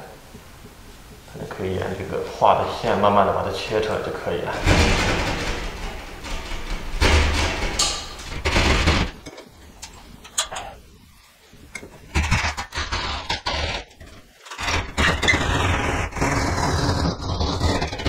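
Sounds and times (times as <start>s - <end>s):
hand saw cutting drywall: 12.0s - 18.0s.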